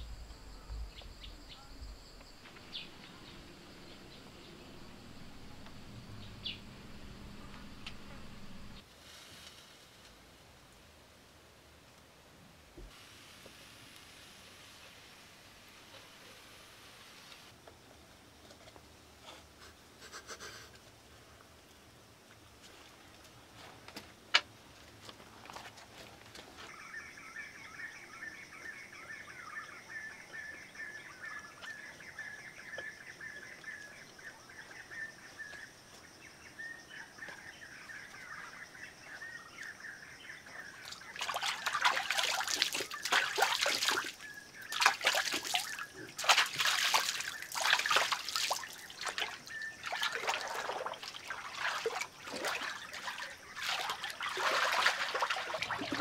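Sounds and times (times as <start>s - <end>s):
birds chirping: 0.0s - 8.8s, 26.8s - 56.0s
insect drone: 0.0s - 9.8s, 26.8s - 56.0s
splashing in water: 40.9s - 56.0s.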